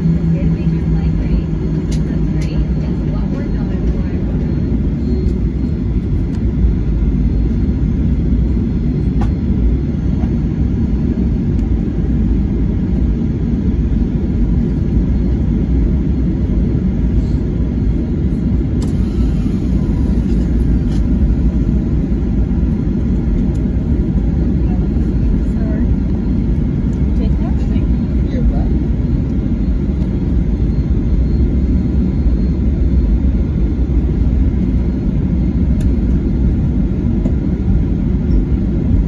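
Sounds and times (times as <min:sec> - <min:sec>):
aircraft cabin engine rumble: 0:00.0 - 0:39.0.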